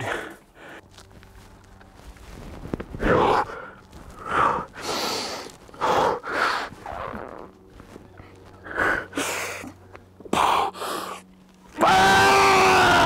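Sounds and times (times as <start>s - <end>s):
climber breathing forcefully: 0.0s - 0.9s, 3.0s - 6.8s, 8.6s - 9.7s, 10.3s - 11.2s.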